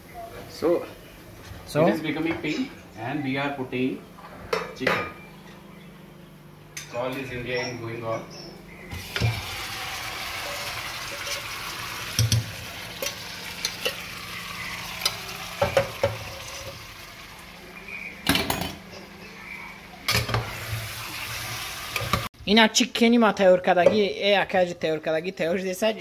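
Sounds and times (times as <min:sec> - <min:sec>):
chicken sizzling in a pan: 0:08.9 - 0:17.6, 0:20.1 - 0:22.3.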